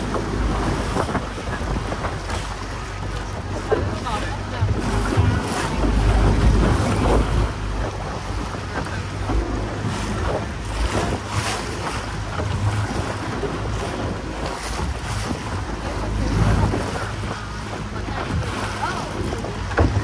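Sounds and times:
boat engine hum: 0.0s - 20.0s
water splashing against hull: 0.0s - 20.0s
wind buffeting microphone: 0.0s - 20.0s.

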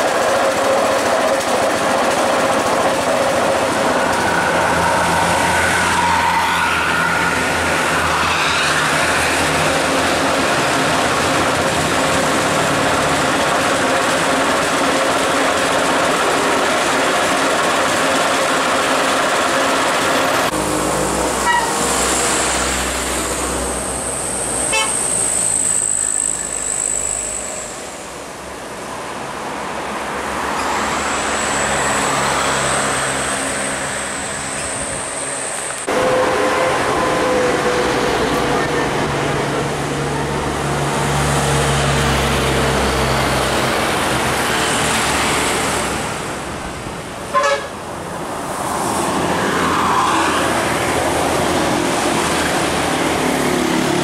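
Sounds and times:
bus engines and road traffic: 0.0s - 54.0s
musical bus air horns: 20.7s - 22.2s, 24.7s - 25.2s, 47.3s - 47.8s.

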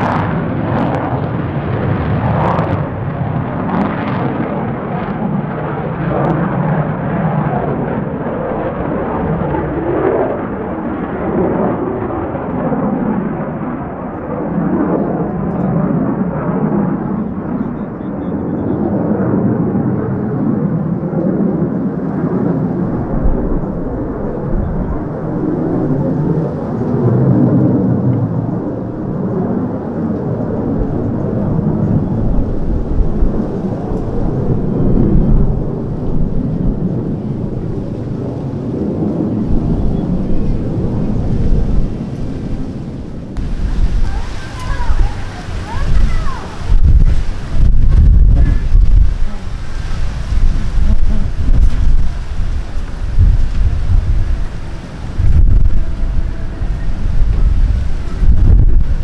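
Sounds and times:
jet engine rumble: 0.0s - 59.0s.

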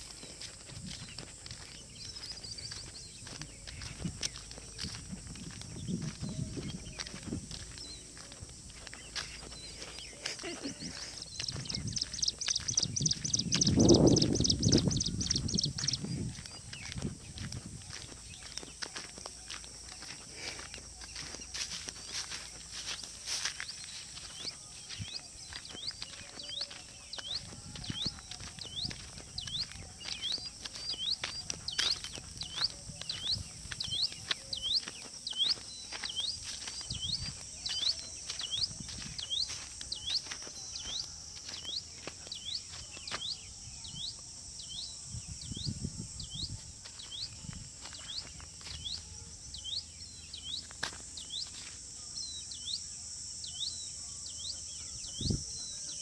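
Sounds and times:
footsteps through grass: 0.0s - 52.7s
high-pitched insect chorus: 0.0s - 56.0s.

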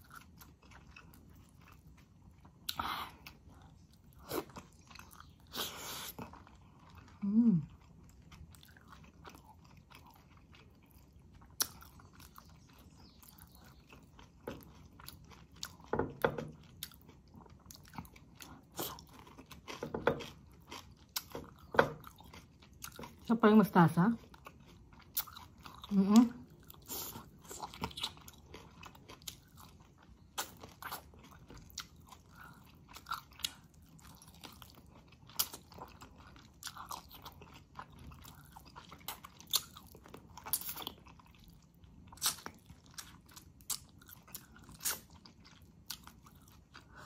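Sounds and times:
person chewing food: 0.0s - 23.3s, 24.2s - 47.0s
person humming: 7.2s - 7.7s.

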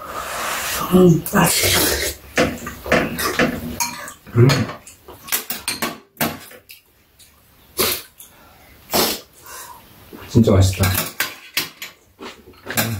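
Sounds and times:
spoons and chopsticks clinking bowls: 2.9s - 6.6s.

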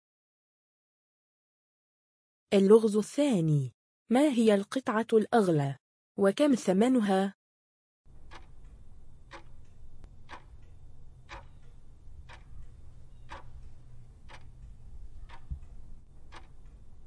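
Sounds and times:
clock ticking: 8.1s - 17.0s
low steady hum: 8.1s - 17.0s.

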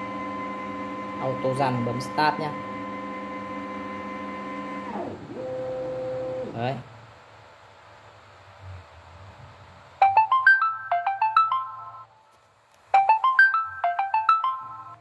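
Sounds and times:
phone ringtone melody: 10.0s - 12.1s, 13.0s - 15.0s.

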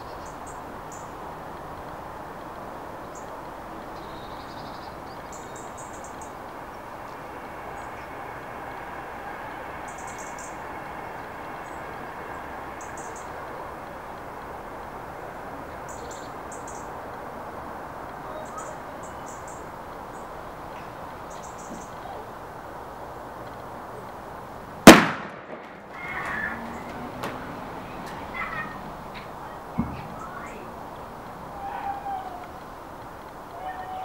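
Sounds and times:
outdoor background: 0.0s - 34.0s
plastic bottle bursting bang: 24.9s - 25.9s.

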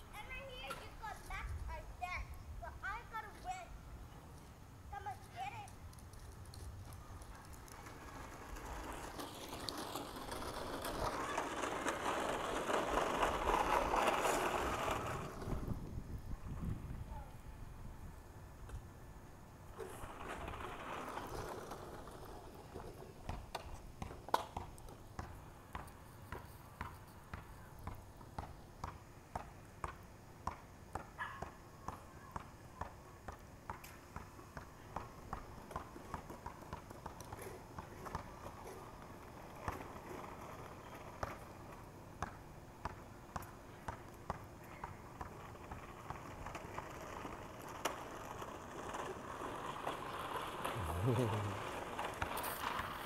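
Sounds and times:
plastic trike wheels rumbling: 5.0s - 16.9s, 19.6s - 26.0s, 34.9s - 53.0s.

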